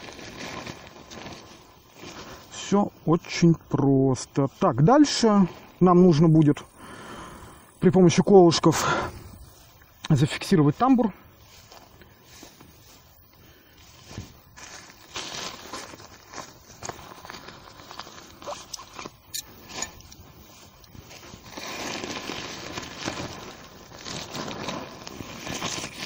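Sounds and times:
tent fabric rustling: 0:00.0 - 0:06.9, 0:08.3 - 0:26.0
tent pegs clicking and scraping: 0:16.8 - 0:23.4.

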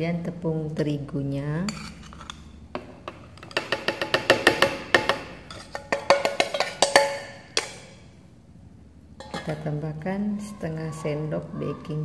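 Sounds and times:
metal spoon clinking in steel bowl: 0:01.6 - 0:02.6, 0:03.3 - 0:08.0, 0:09.2 - 0:09.8.

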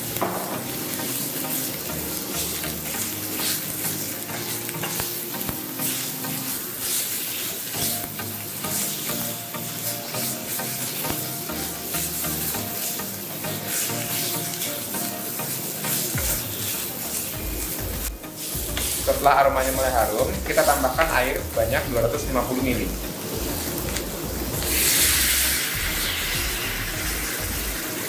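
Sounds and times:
paste sizzling in hot oil: 0:00.0 - 0:28.0
spatula scraping a pan: 0:00.5 - 0:22.0.

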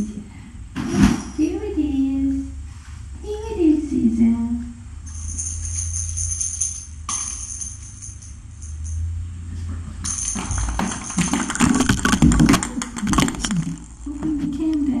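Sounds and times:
cat toy jingling: 0:05.1 - 0:09.1, 0:10.0 - 0:12.5.

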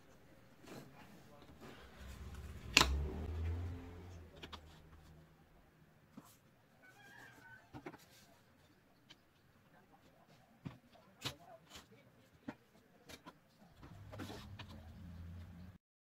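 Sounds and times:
low hum: 0:01.6 - 0:05.4.

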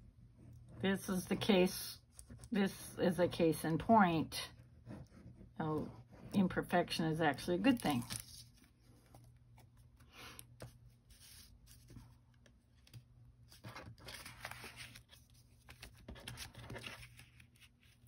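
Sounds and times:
paper rustling: 0:07.7 - 0:18.0.

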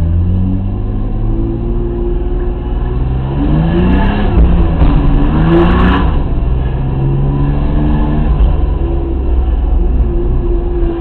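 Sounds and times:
car engine accelerating from cabin: 0:00.0 - 0:11.0.

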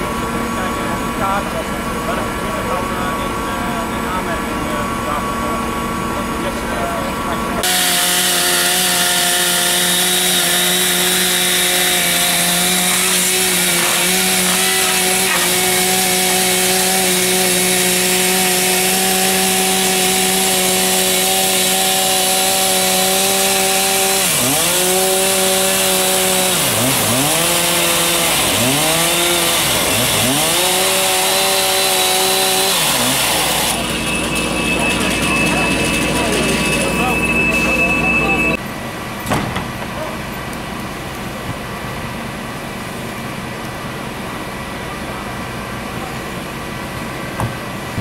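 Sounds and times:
chainsaw cutting wood: 0:07.6 - 0:37.9.

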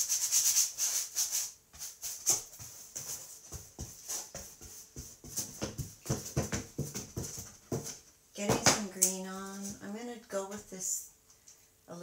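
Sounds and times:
paintbrush scrubbing: 0:00.0 - 0:06.4.

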